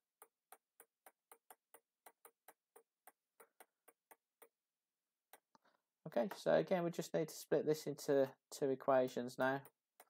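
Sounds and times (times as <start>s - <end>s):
stylus tapping on pen tablet: 0.0s - 4.7s.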